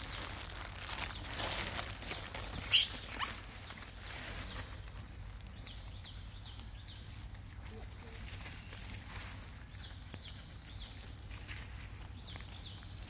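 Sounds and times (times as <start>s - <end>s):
macaque squealing: 2.6s - 3.4s
short high chirps: 2.7s - 3.3s.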